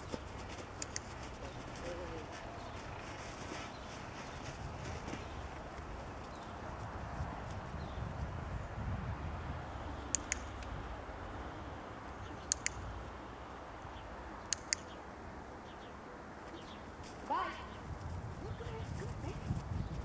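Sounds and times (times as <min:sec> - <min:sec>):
sharp double clicks: 0:00.8 - 0:01.2, 0:10.1 - 0:10.8, 0:12.4 - 0:13.0, 0:14.4 - 0:15.0.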